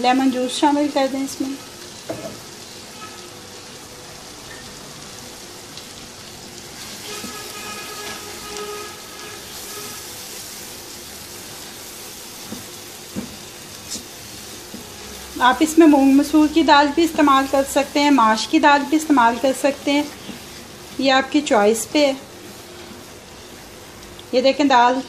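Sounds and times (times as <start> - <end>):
food sizzling in a pan: 0.0 - 25.0
spatula stirring and scraping: 7.0 - 10.2, 11.5 - 15.3, 20.0 - 21.1.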